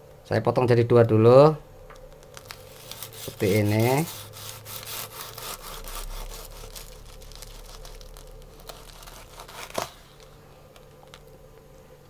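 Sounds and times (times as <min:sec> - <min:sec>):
knife sawing through crispy crust: 0:02.6 - 0:10.2.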